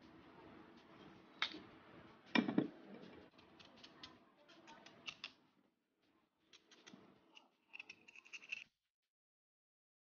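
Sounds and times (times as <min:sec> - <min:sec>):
knife clicks and scrapes: 0:03.3 - 0:05.4, 0:06.5 - 0:08.7.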